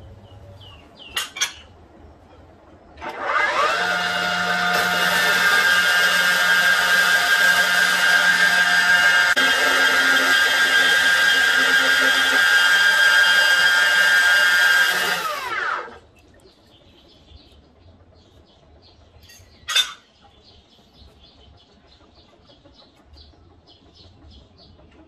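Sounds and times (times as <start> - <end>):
cut-off saw whining: 3.0 - 16.0.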